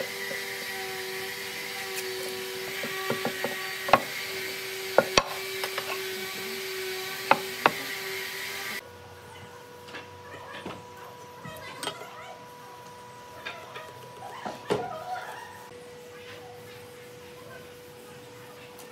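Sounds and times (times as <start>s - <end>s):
steady background hum: 0.0s - 18.9s
wood and metal knocking on plank: 2.7s - 4.2s, 4.9s - 6.0s, 7.2s - 7.9s.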